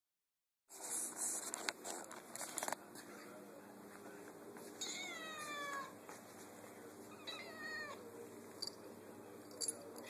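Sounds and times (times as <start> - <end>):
cat meowing: 4.8 - 6.0, 7.1 - 8.0.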